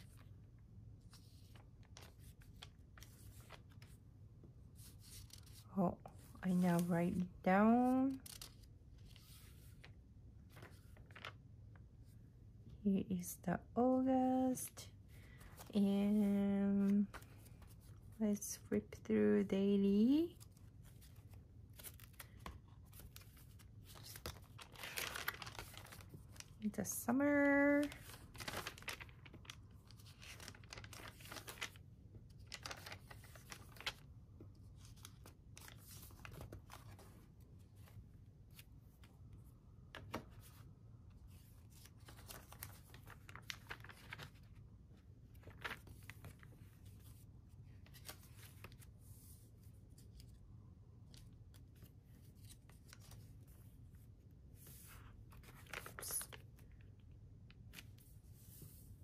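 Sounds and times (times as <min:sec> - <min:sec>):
journal pages turning: 0:01.0 - 0:04.0, 0:04.7 - 0:05.6, 0:06.6 - 0:11.4, 0:20.4 - 0:26.6, 0:27.7 - 0:39.1, 0:39.9 - 0:50.4, 0:51.0 - 0:53.7, 0:54.6 - 0:56.8
dry paper rustles: 0:20.4 - 0:26.7, 0:27.3 - 0:34.1, 0:34.7 - 0:37.2, 0:41.3 - 0:44.6, 0:45.3 - 0:50.4, 0:54.6 - 0:56.7.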